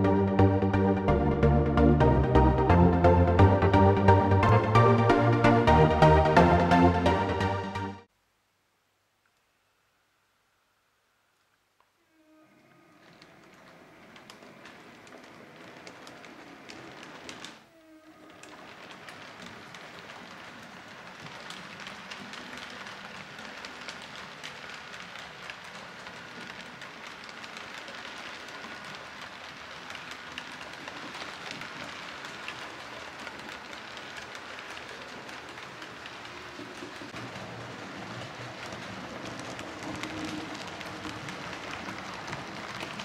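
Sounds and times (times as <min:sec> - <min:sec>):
model train wheels clicking on track: 0:13.1 - 0:17.6, 0:18.3 - 0:43.0.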